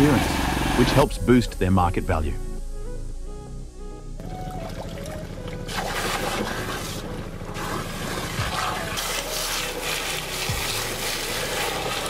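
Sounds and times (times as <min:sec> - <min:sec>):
low steady hum: 0:00.0 - 0:12.0
water jet hissing from hose: 0:05.7 - 0:12.0.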